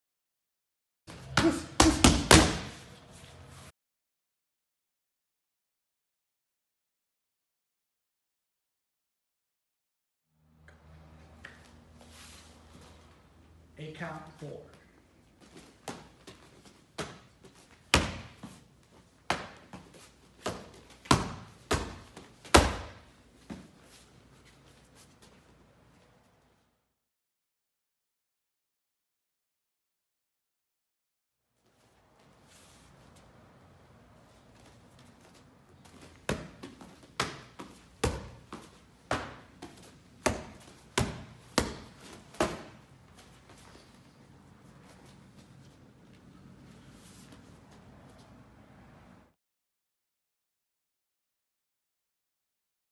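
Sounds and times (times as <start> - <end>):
strikes smacking padded mitts: 1.3 - 2.8, 17.9 - 18.5, 20.4 - 23.6, 36.2 - 42.8.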